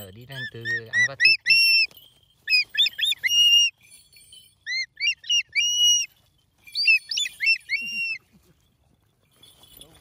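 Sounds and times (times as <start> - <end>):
eagle whistled calls: 0.3 - 3.8, 4.6 - 6.1, 6.7 - 8.2.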